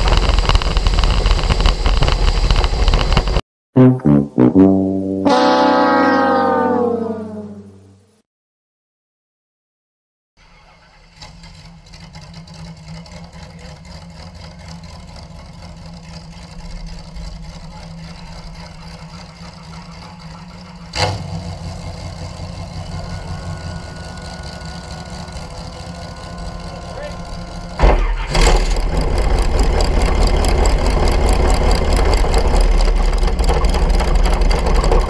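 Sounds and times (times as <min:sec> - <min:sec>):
sharp bang: 0:03.8 - 0:07.6
dragster engines idling: 0:10.4 - 0:35.0
engine firing up: 0:10.4 - 0:35.0.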